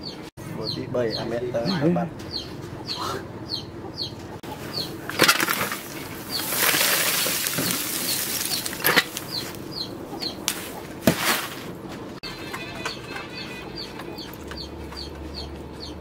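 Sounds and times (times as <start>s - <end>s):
charcoal pouring rattle: 5.1s - 9.3s.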